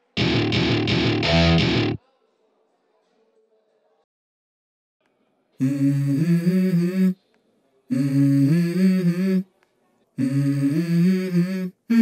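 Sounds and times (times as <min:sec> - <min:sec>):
person humming a wordless melody: 0:05.6 - 0:07.2, 0:07.9 - 0:09.5, 0:10.2 - 0:12.0.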